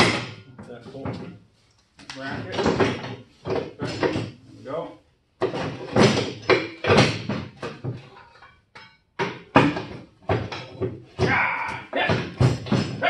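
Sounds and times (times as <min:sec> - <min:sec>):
metal clanks and scrapes: 0:02.2 - 0:04.8, 0:05.4 - 0:11.0.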